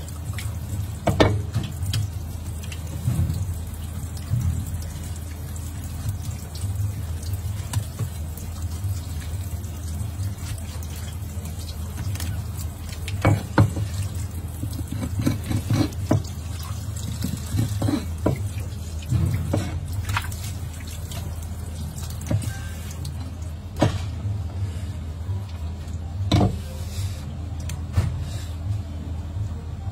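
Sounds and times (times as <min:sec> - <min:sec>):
tap water running onto board: 0:00.0 - 0:23.1.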